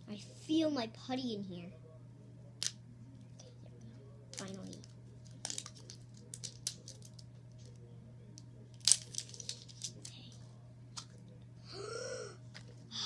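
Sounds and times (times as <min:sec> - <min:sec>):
steady low hum: 0:00.0 - 0:13.0
plastic clicks and crinkles: 0:04.4 - 0:07.8.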